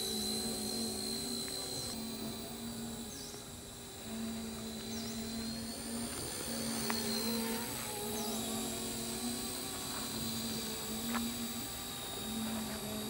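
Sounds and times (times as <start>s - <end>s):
remote-control helicopter motor whine: 0.0s - 13.0s.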